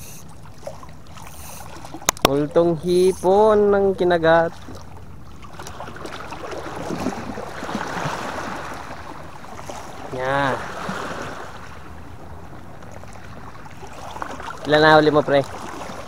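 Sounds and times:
sea water washing against rocks: 5.5s - 11.7s.

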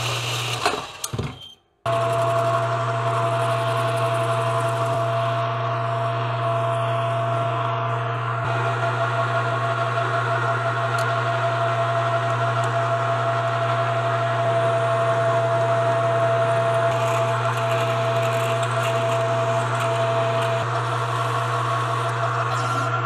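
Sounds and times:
metal lathe drilling: 0.0s - 1.0s, 1.9s - 23.0s.

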